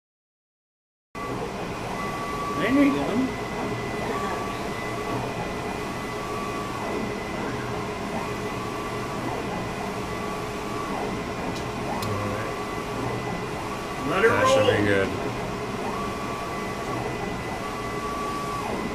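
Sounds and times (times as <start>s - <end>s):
print head carriage whine: 1.2s - 18.9s
steady machine hum: 1.2s - 18.9s.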